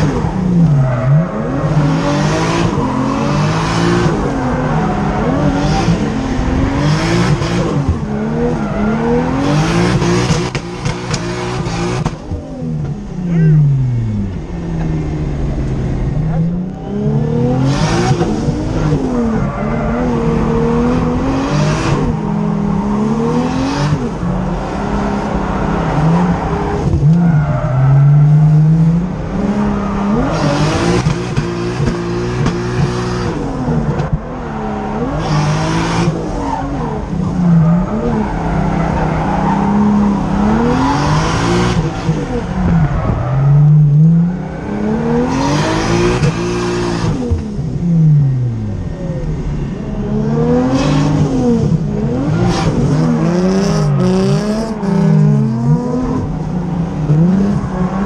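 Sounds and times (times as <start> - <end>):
car engine revving: 0.0 - 58.0
tire squeal: 36.1 - 46.0.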